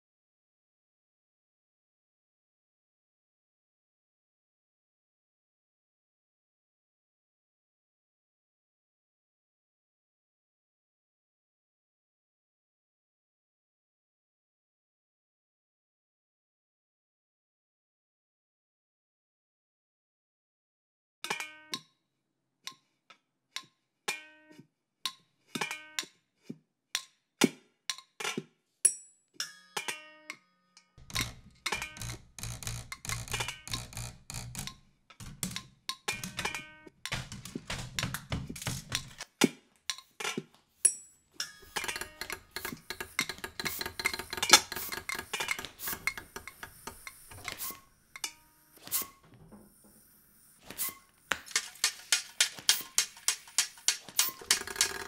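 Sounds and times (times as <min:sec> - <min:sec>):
clattering rattling taps: 0:31.0 - 0:39.2, 0:41.4 - 0:47.8, 0:51.3 - 0:55.0
pitched taps on household objects: 0:31.0 - 0:39.3, 0:41.4 - 0:48.4, 0:50.7 - 0:55.0.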